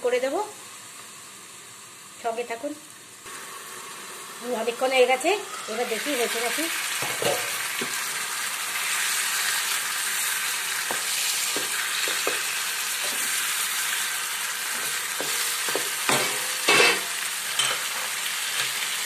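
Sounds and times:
chicken sizzling in a pan: 0.0 - 19.0
spatula scraping and tapping pan: 10.8 - 13.4, 14.7 - 18.0.

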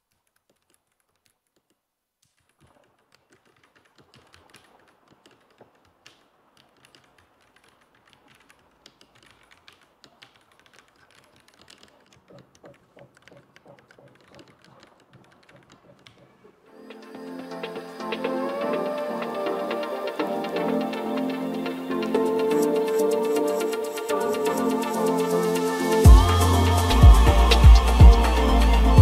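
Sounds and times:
mechanical keyboard typing: 0.0 - 16.4.

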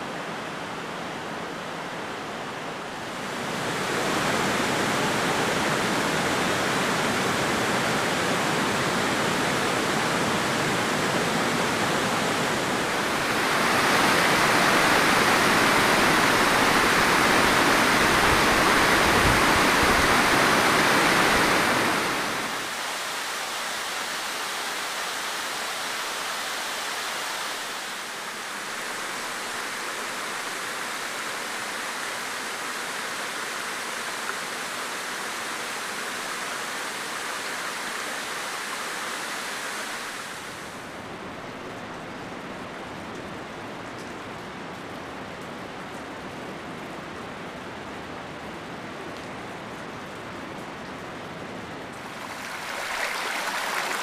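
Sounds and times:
waterfall rushing: 0.0 - 41.0, 51.9 - 54.0.

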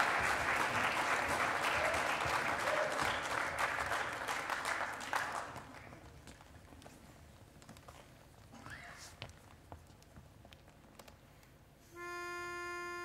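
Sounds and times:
audience applause: 0.0 - 6.1.

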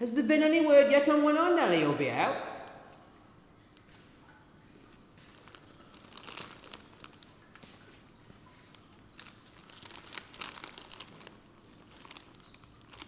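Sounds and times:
faint rustling: 5.2 - 13.0.

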